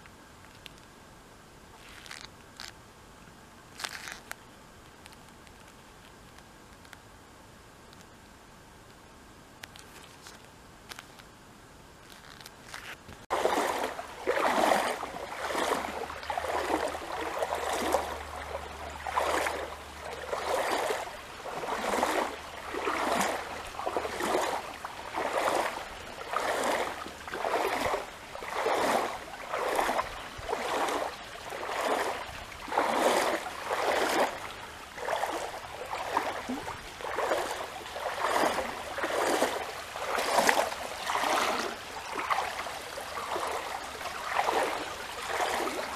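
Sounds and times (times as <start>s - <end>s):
flowing water in swells: 13.2s - 45.9s.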